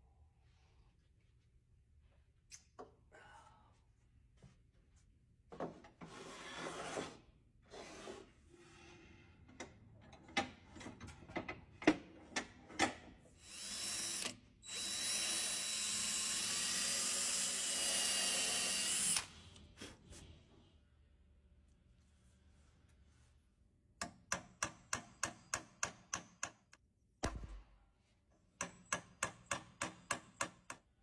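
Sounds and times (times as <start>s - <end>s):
drill boring into wood: 13.4s - 19.3s.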